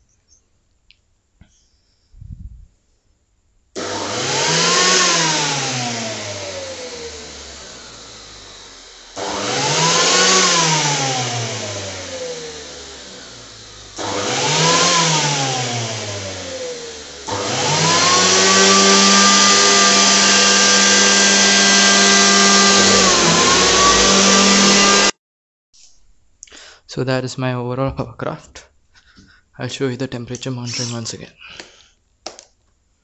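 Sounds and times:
electric fan motors whining: 0:03.8 - 0:25.1.

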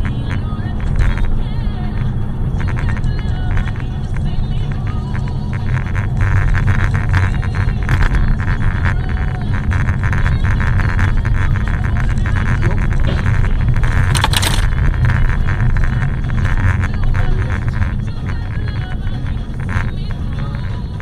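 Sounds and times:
car driving rumble inside cabin: 0:00.0 - 0:21.0
fine rattle: 0:12.6 - 0:14.8.

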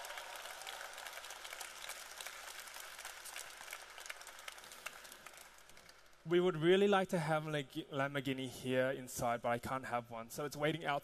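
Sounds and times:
faint audience applause: 0:00.0 - 0:06.3.

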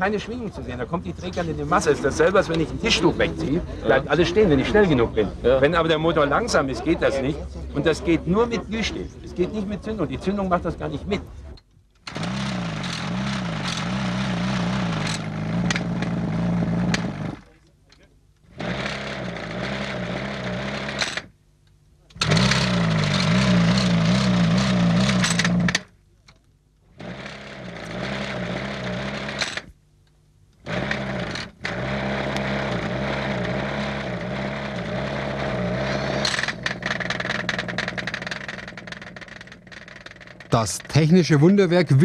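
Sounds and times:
stuttering engine running: 0:12.1 - 0:17.5, 0:18.5 - 0:21.3, 0:22.1 - 0:25.9, 0:27.0 - 0:29.7, 0:30.6 - 0:41.3.

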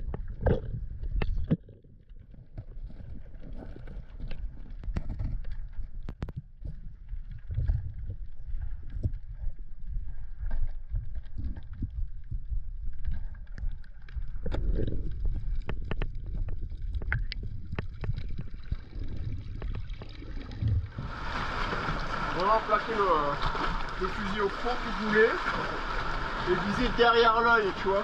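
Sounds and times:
underwater clicks and crackles: 0:00.0 - 0:28.0
underwater rumble of moving water: 0:00.0 - 0:28.0
rush of water: 0:18.0 - 0:28.0.

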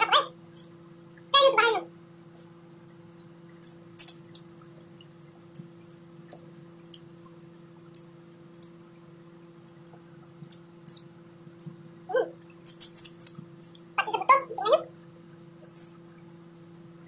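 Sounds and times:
faint low hum: 0:00.0 - 0:17.0
wet lip smacks and chewing: 0:02.4 - 0:11.8, 0:12.4 - 0:13.8.

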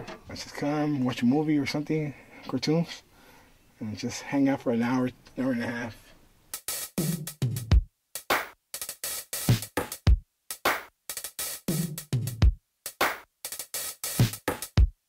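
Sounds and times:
electronic beat music: 0:06.6 - 0:15.0.

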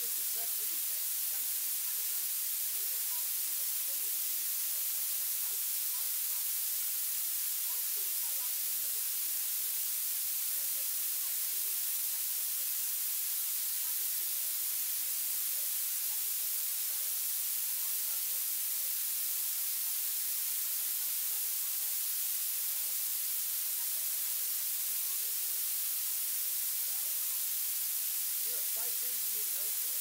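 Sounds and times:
faint voice: 0:00.0 - 0:06.6, 0:28.4 - 0:30.0
electronic hiss: 0:00.0 - 0:30.0.

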